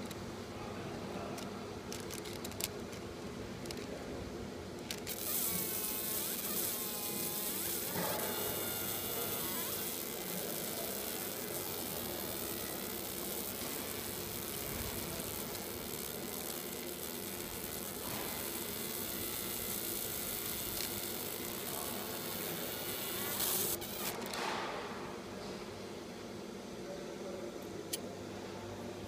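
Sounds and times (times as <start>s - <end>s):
faint steady hum: 0.0s - 29.0s
laser engraver sizzling hiss: 4.9s - 24.3s.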